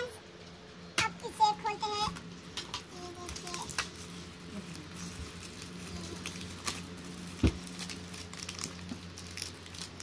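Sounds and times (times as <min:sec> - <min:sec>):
low steady hum: 0:00.0 - 0:10.0
foil wrap crinkling and tearing: 0:03.0 - 0:10.0.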